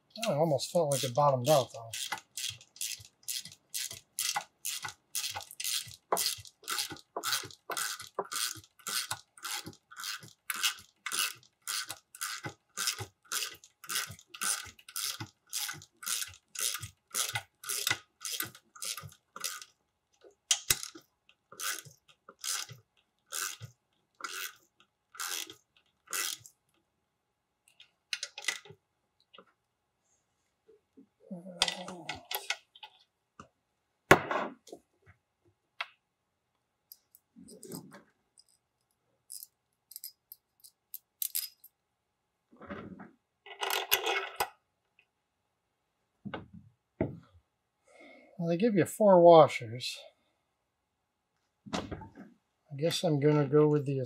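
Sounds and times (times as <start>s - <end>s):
ratchet wrench clicking: 25.2s - 25.5s.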